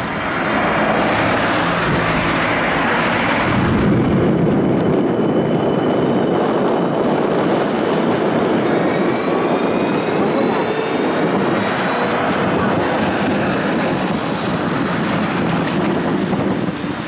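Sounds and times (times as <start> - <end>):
tram wheels on rails: 0.0 - 17.0.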